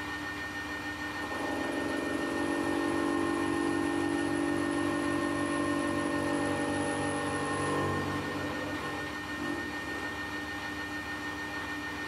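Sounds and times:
metal lathe running: 0.0s - 11.9s
faint high whine: 0.0s - 12.0s.

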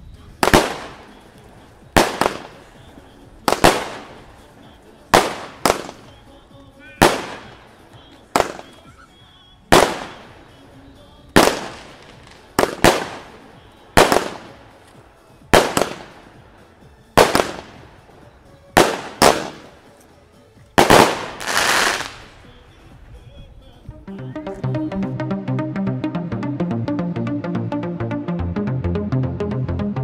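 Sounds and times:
fireworks bangs with echo: 0.3s - 6.4s, 7.0s - 8.8s, 9.7s - 10.6s, 11.4s - 19.9s, 20.8s - 22.5s.

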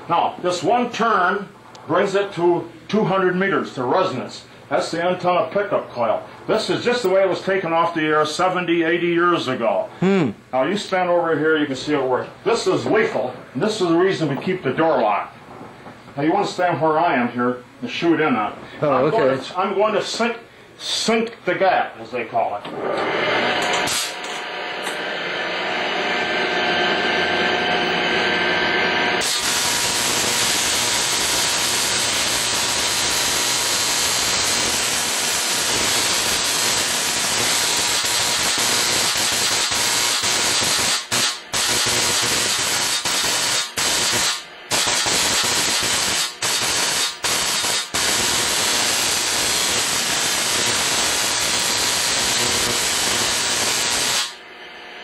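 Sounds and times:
spark gap hissing rasp: 23.6s - 24.4s, 29.2s - 54.4s.

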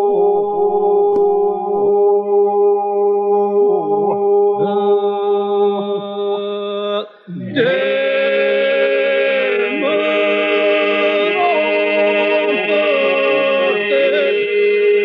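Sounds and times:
low vocal drone: 0.0s - 15.0s
men's choir singing: 4.6s - 15.0s.

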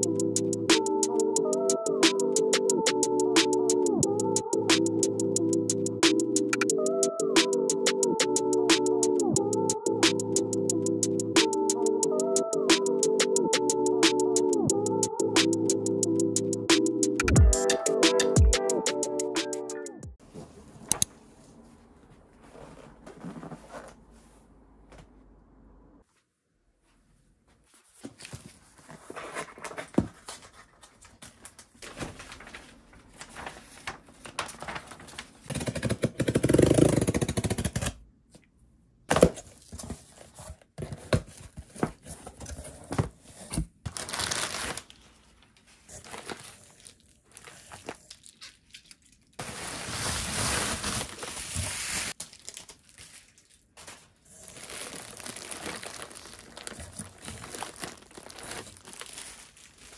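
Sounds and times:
plastic bags rustling: 27.8s - 35.5s, 41.2s - 59.9s
packing paper crumpling: 28.2s - 35.9s, 43.9s - 59.9s
packing tape ripping: 35.5s - 38.0s, 46.1s - 59.9s.

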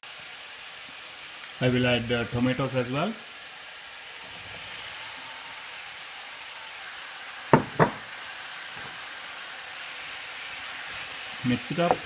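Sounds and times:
vegetables sizzling in oil: 0.0s - 12.0s
sharp knocks against pan: 7.5s - 8.0s.

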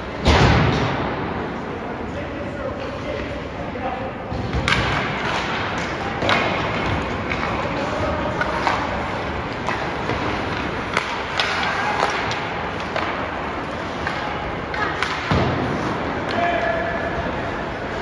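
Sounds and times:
hockey sticks and puck clacking: 4.3s - 18.0s
skates scraping ice: 4.8s - 18.0s.

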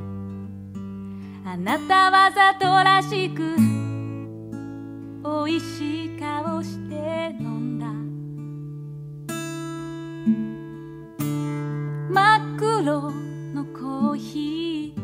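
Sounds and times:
strummed acoustic guitar: 0.0s - 15.0s
woman singing: 1.4s - 4.2s, 5.2s - 8.1s, 12.1s - 15.0s.

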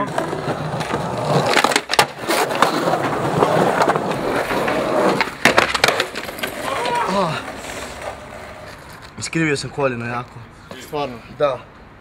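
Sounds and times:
skateboard clacking on ground: 0.0s - 9.4s
skateboard wheels rolling on concrete: 0.0s - 12.0s.

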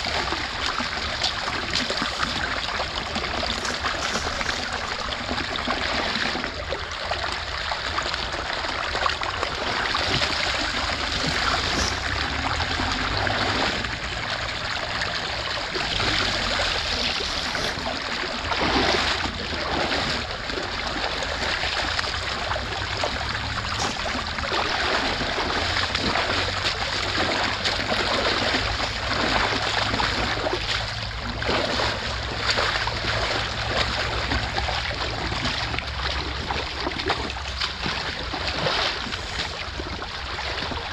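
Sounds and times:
creek water rushing: 0.0s - 40.9s
splashes of sticks pulled out: 10.9s - 13.6s, 23.6s - 24.8s.

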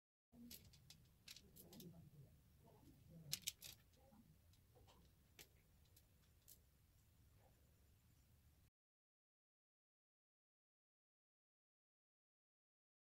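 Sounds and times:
small beads clicking together: 0.4s - 2.0s, 3.1s - 6.6s.

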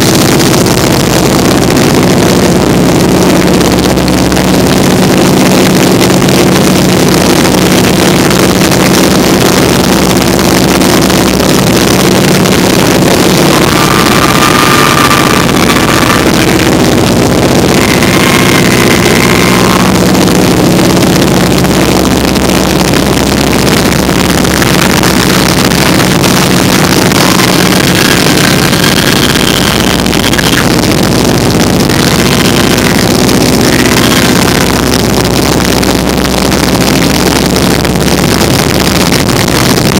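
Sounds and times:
biplane engine droning: 0.0s - 39.9s
wind rushing over microphone: 0.0s - 39.9s
faint high tones: 11.6s - 22.8s.

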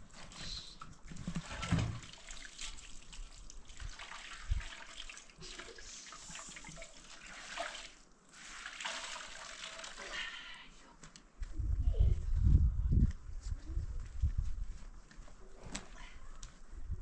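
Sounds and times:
water trickling and splashing: 0.9s - 10.5s.

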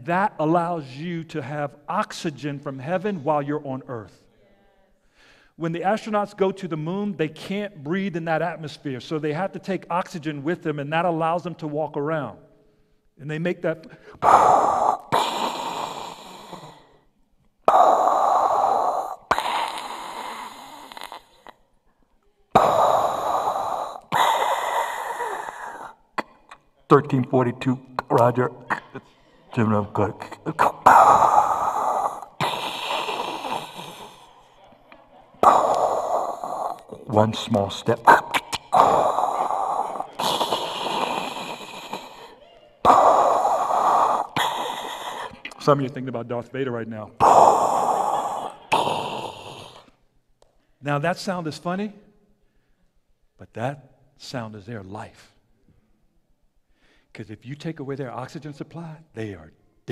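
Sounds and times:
man breathing loudly into microphone: 5.0s - 5.6s, 13.9s - 17.1s, 17.7s - 21.5s, 22.6s - 26.1s, 28.0s - 34.6s, 35.4s - 45.6s, 47.2s - 49.9s, 56.7s - 57.1s
man breathing into microphone: 29.6s - 34.5s, 35.4s - 45.6s.

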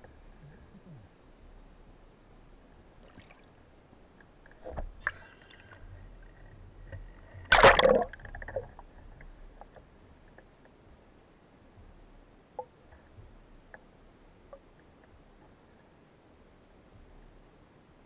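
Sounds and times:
underwater water noise: 0.0s - 17.4s
sudden rush of bubbling: 7.5s - 8.2s.

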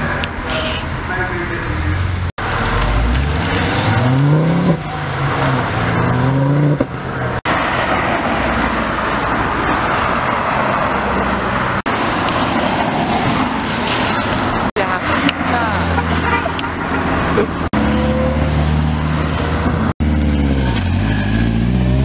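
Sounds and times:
cars passing on wet road: 0.0s - 22.0s
car engine revving: 1.9s - 10.3s.

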